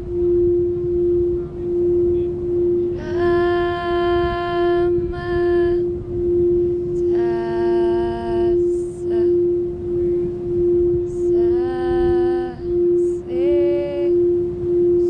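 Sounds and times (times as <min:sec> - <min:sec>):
higher held overtone tone: 0:00.0 - 0:15.0
singing bowl ringing tone: 0:00.0 - 0:15.0.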